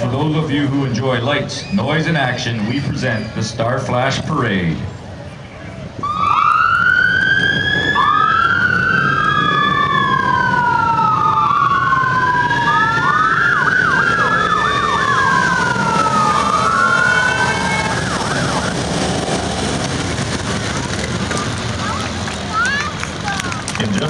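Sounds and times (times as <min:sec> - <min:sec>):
motorcycle engines rumbling: 0:00.0 - 0:24.0
police sirens wailing: 0:05.6 - 0:24.0
siren yelp: 0:06.0 - 0:19.6.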